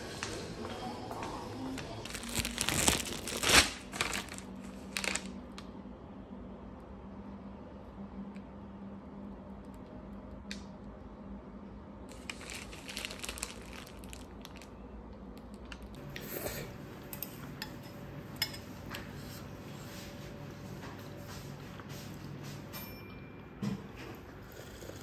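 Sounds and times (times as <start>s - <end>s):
low steady hum: 0.0s - 25.0s
plastic bag rustling: 2.0s - 5.4s, 12.1s - 14.8s.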